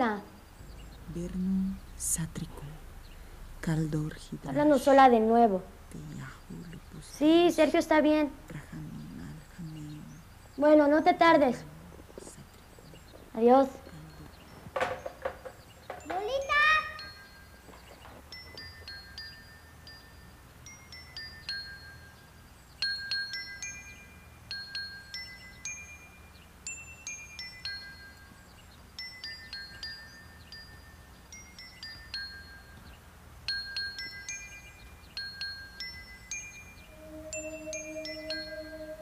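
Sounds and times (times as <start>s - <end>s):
steady low tone: 0.4s - 10.6s, 36.4s - 39.0s
chimes tinkling: 13.0s - 39.0s.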